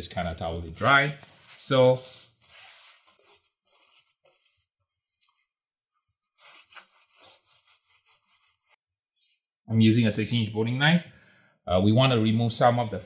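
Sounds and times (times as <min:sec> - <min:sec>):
paper towel rubbing on meat: 0:00.7 - 0:08.8.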